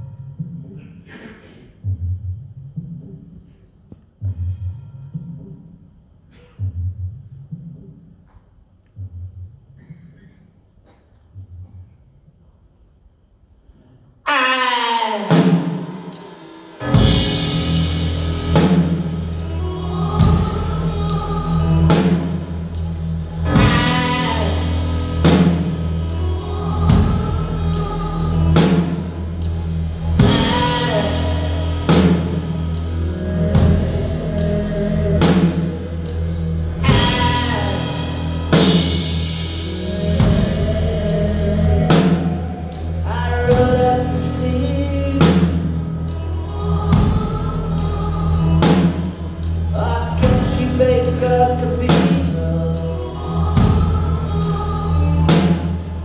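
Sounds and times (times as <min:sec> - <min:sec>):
man singing: 0:14.3 - 0:16.0, 0:23.5 - 0:25.4, 0:30.2 - 0:32.0, 0:33.0 - 0:36.2, 0:36.8 - 0:49.1, 0:49.7 - 0:55.7
drum kit beat: 0:15.3 - 0:54.7.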